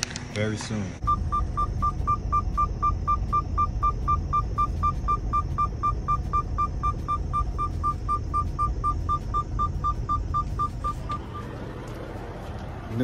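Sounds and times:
truck warning alarm beeping: 1.0 - 11.8
diesel engine idling: 1.0 - 13.0.

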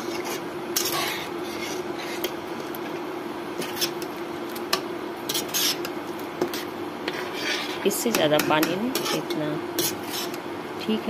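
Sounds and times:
fork scraping a frying pan: 0.0 - 2.4, 3.6 - 4.1, 4.7 - 10.4
steady hum: 0.0 - 11.0.

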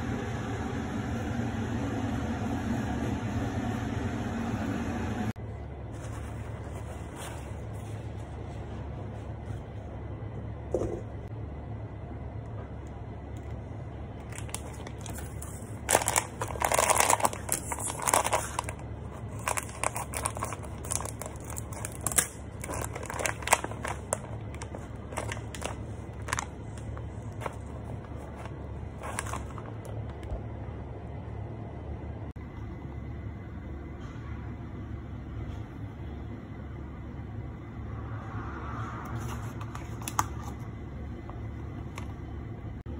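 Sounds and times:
steady low hum: 0.0 - 42.9
plastic packet crinkling: 14.2 - 30.3.

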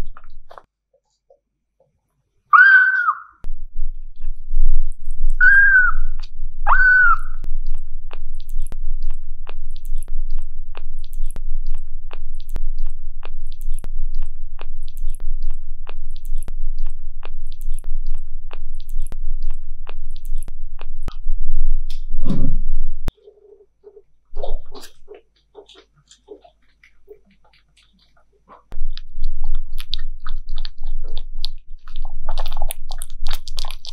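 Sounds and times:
animal mewing calls: 2.5 - 3.4, 5.4 - 6.1, 6.7 - 7.4
wet suckling clicks: 4.0 - 21.2, 24.4 - 33.9.

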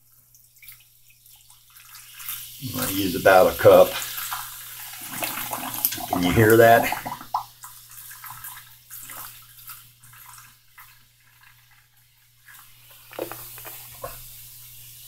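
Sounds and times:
liquid trickling and fizzing: 0.0 - 15.0.

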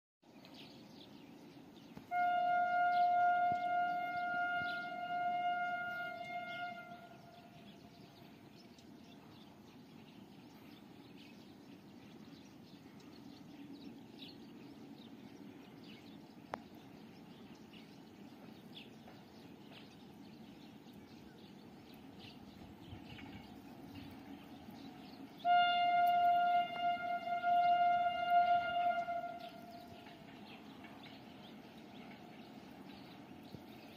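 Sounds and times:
bird chirps: 0.4 - 33.9
train horn: 2.0 - 8.2, 25.1 - 31.2.

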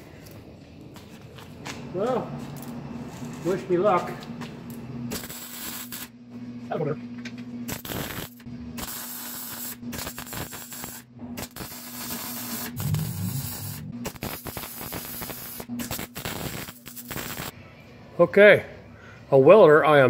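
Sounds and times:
steady low hum: 0.0 - 19.3
welding arc crackling and hissing: 5.1 - 6.1, 7.6 - 17.5.

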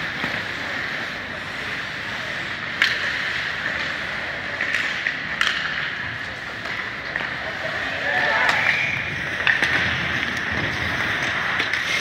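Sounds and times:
skates hissing on ice: 0.0 - 4.6
sticks and puck clacking: 0.0 - 12.0.

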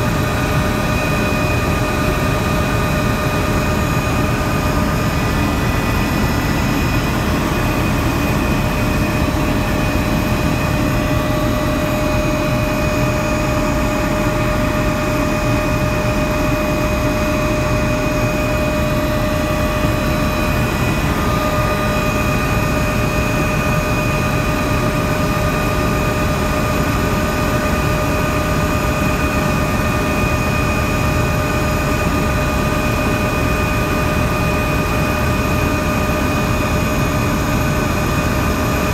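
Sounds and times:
helicopter engine and rotor noise: 0.0 - 38.9
high whine: 0.1 - 24.2.

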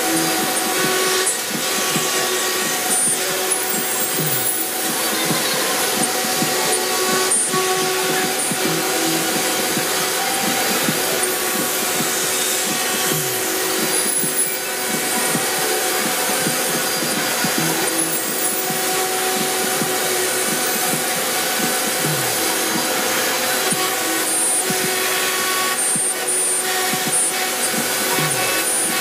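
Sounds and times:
router bit cutting wood: 0.0 - 29.0
router spindle humming: 0.0 - 29.0.

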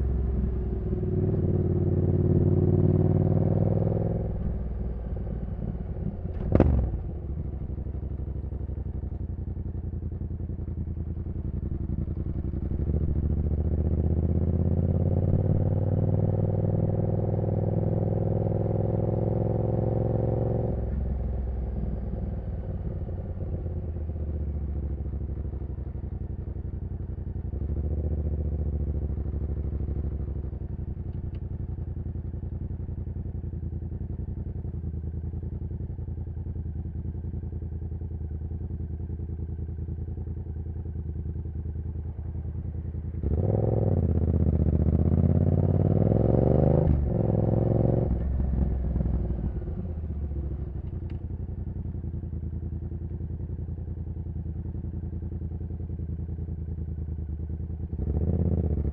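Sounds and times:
motorcycle engine revving: 0.0 - 8.6, 11.0 - 23.4, 40.8 - 53.2, 54.1 - 58.9.

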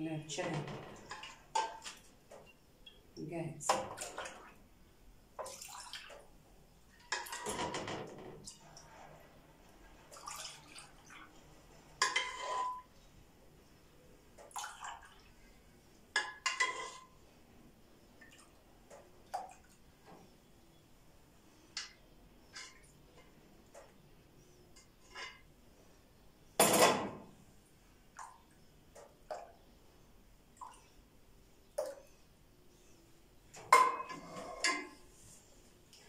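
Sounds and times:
ladle clinking against pots: 33.6 - 35.0.

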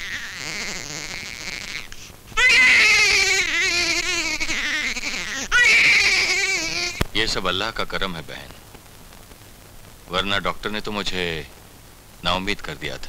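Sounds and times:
newborn baby crying: 0.0 - 7.1.

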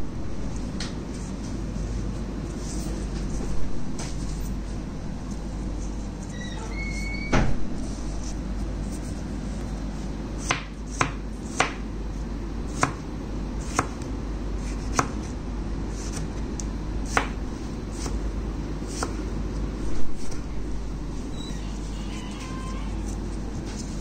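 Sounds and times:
knife slicing tomatoes: 17.0 - 18.2, 18.8 - 19.3.

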